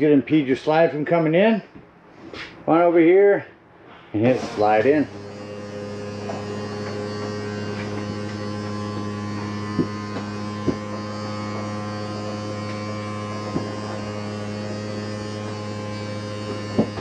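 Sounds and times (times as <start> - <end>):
electric motor humming: 4.2 - 17.0.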